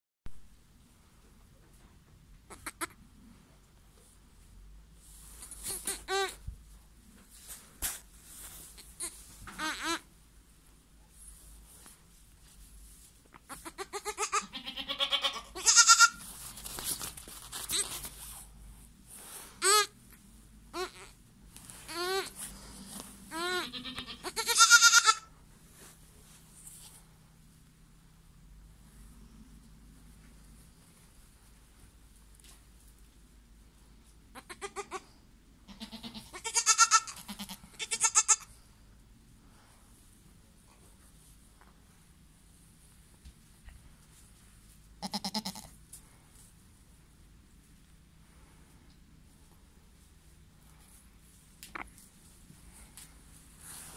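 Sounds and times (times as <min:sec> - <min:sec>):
goat kid bleating: 0:02.5 - 0:03.0, 0:05.4 - 0:06.4, 0:08.8 - 0:10.1, 0:13.4 - 0:16.2, 0:17.6 - 0:18.0, 0:19.6 - 0:20.0, 0:20.7 - 0:21.2, 0:21.8 - 0:22.4, 0:23.3 - 0:25.3, 0:34.3 - 0:35.1, 0:35.7 - 0:38.5, 0:45.0 - 0:45.8.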